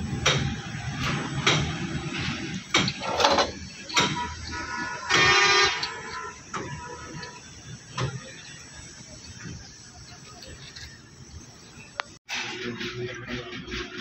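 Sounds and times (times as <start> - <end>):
horn honk: 3.0 - 8.4.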